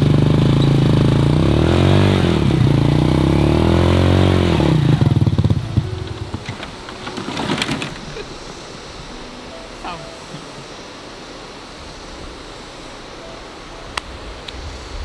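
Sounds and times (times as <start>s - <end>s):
motorcycle engine revving: 0.0s - 9.2s
clicks and rattles: 6.1s - 8.2s.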